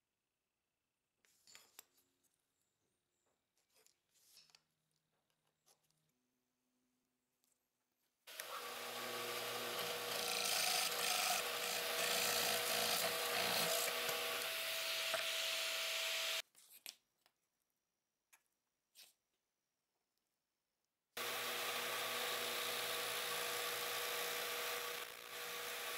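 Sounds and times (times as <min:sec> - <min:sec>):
drill press boring into wood: 0:08.3 - 0:16.4, 0:21.2 - 0:25.9.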